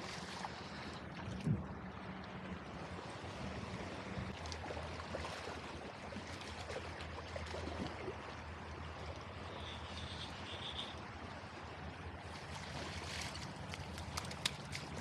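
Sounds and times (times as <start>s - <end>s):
creek water running over gravel: 12.2s - 15.0s.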